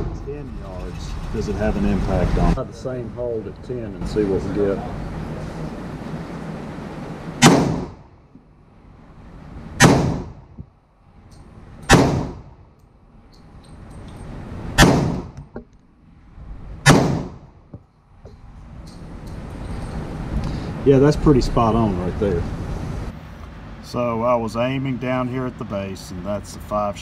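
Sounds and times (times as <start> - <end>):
pistol gunshots: 7.4 - 8.0, 9.8 - 10.5, 11.9 - 12.6, 14.8 - 15.4, 16.8 - 17.5.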